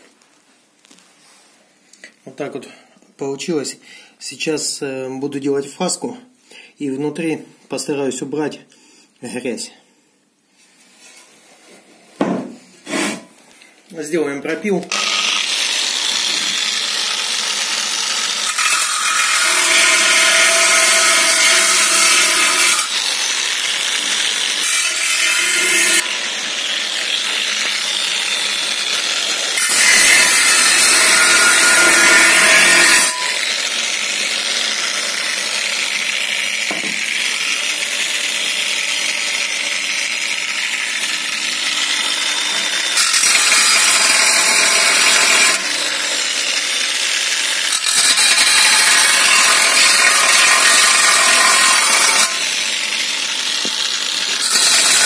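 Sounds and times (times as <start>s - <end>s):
angle grinder cutting metal: 14.6s - 55.0s.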